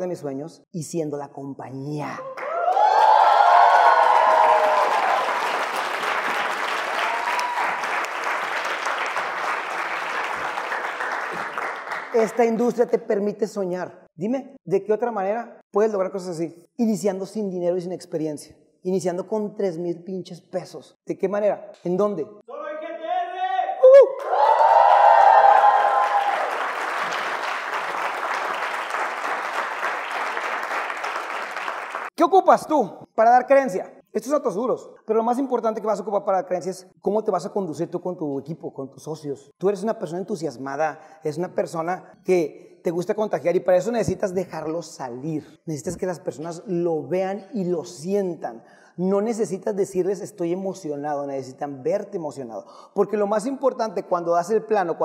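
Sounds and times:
audience cheering: 0:02.4 - 0:11.9, 0:23.8 - 0:32.1
audience applauding: 0:02.4 - 0:12.4, 0:24.2 - 0:32.2.

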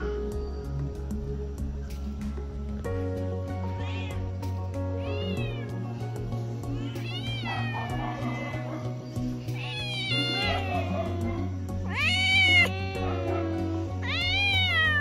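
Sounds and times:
background music with bass line: 0:00.0 - 0:15.0
cat meowing: 0:03.6 - 0:04.4, 0:05.0 - 0:06.0, 0:06.7 - 0:08.8, 0:09.5 - 0:15.0.

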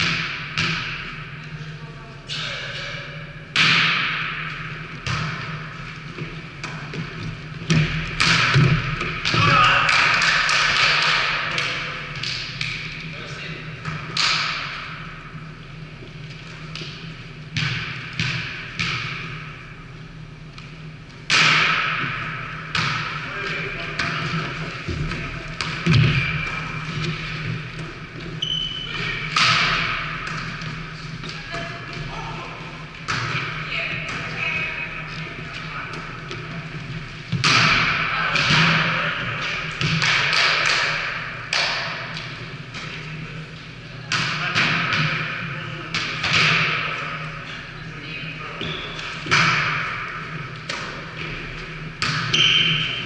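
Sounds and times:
volleyball smacks echoing: 0:00.0 - 0:01.2, 0:03.5 - 0:05.7, 0:06.6 - 0:12.9, 0:16.7 - 0:19.5, 0:21.3 - 0:27.2, 0:29.0 - 0:32.0, 0:37.3 - 0:42.9, 0:48.6 - 0:52.9
steady low hum: 0:00.0 - 0:53.0.

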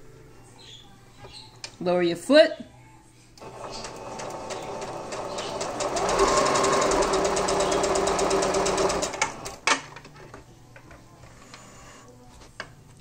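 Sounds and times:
sewing machine stitching: 0:03.4 - 0:09.6.

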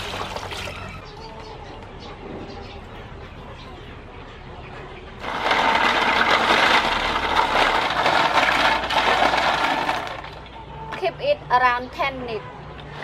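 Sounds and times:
snail shells clattering in basin: 0:05.2 - 0:10.6.

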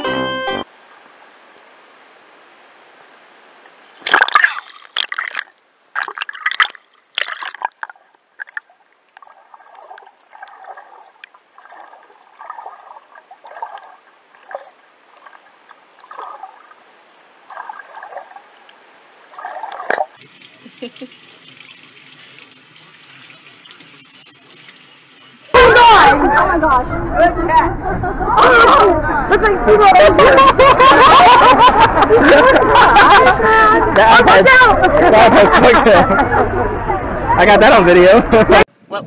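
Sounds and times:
faint steady hiss: 0:00.0 - 0:04.1, 0:20.2 - 0:25.6
water gurgling underwater: 0:04.1 - 0:16.7.

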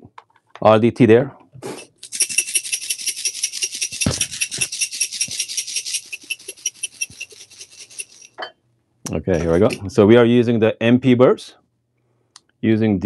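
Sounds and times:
coffee beans rattling in a cup: 0:01.8 - 0:08.4, 0:09.4 - 0:09.9.

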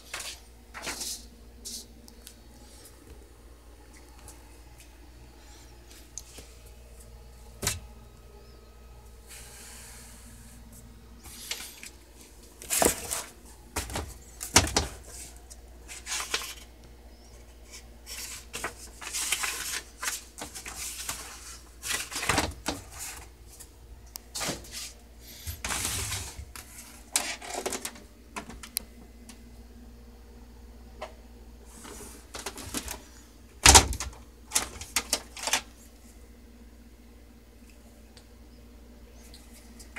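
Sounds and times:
paper rustling: 0:00.0 - 0:01.9, 0:11.2 - 0:16.7, 0:17.6 - 0:23.7, 0:24.3 - 0:28.6, 0:31.7 - 0:35.8
steady low hum: 0:00.0 - 0:39.9.

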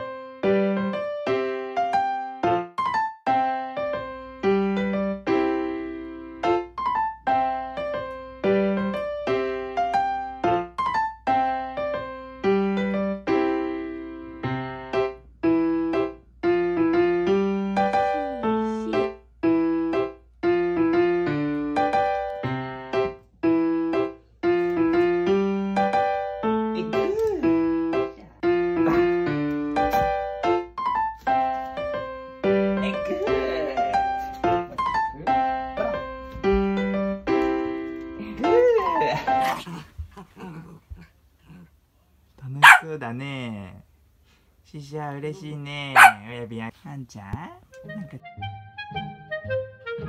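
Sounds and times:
piano chords: 0:00.0 - 0:39.7, 0:47.7 - 0:50.0.

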